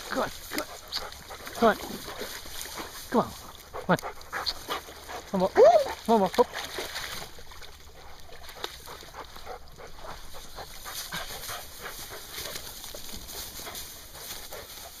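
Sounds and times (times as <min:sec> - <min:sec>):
rustling through long grass: 0:00.0 - 0:03.7, 0:06.6 - 0:15.0
dog panting: 0:00.2 - 0:06.1, 0:07.7 - 0:15.0.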